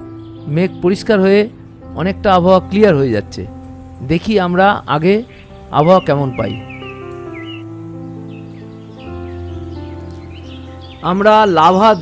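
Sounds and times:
music of long held notes: 0:00.0 - 0:12.0.

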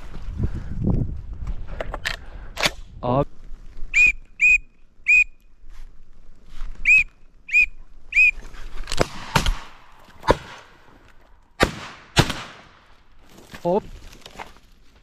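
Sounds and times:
whistled calls: 0:03.9 - 0:05.6, 0:06.8 - 0:08.4
shotgun shots: 0:08.9 - 0:10.7, 0:11.6 - 0:12.8.

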